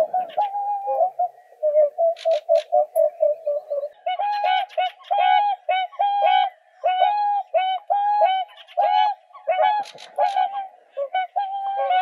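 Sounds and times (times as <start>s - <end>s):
swans trumpeting honks: 4.0s - 6.5s, 7.1s - 12.0s.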